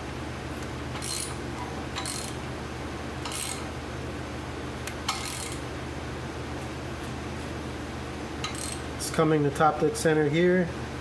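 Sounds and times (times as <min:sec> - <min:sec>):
steady low hum: 0:00.0 - 0:11.0
crankshaft rasping strokes: 0:01.0 - 0:01.4.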